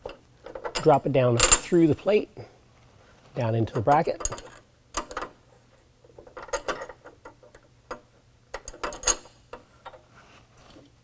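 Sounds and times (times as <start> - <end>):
metal bolts clicking on steel: 0.0 - 1.8, 3.7 - 5.4, 6.1 - 10.0.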